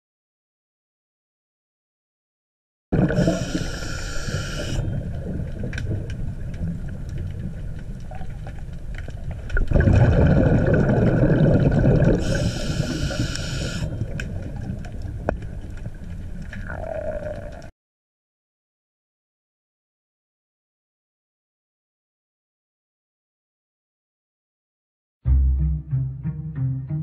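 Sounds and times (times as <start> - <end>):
exhaled bubbles burst: 3.0 - 3.8, 9.5 - 13.0, 16.5 - 17.7
diver breathing through regulator: 3.0 - 5.0, 12.1 - 14.2
low underwater rumble: 4.8 - 12.4.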